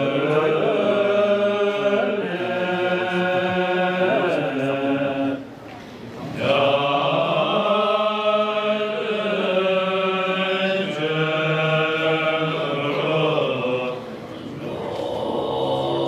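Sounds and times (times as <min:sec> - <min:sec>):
monks chanting together: 0:00.0 - 0:05.6, 0:06.2 - 0:16.0.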